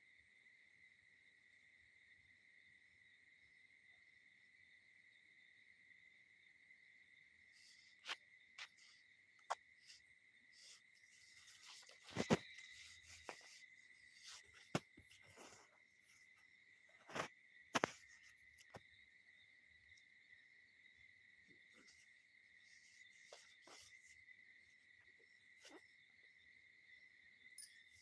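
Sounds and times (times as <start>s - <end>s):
phone handled against cloth: 10.7s - 15.7s.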